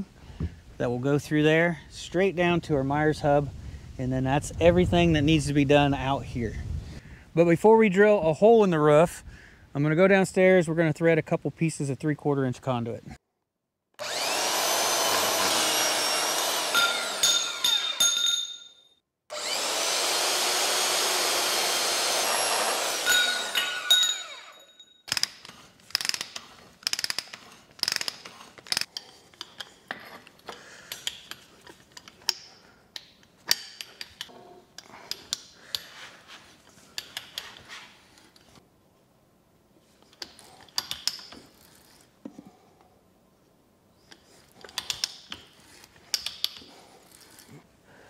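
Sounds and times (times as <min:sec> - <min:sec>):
metal fittings clicking and clinking: 0:44.1 - 0:47.5.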